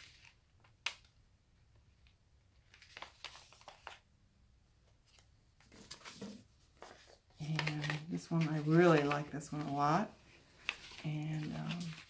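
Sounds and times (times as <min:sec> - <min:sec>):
paper rustling and tapping: 0:01.9 - 0:04.0, 0:04.9 - 0:09.9, 0:10.6 - 0:12.0.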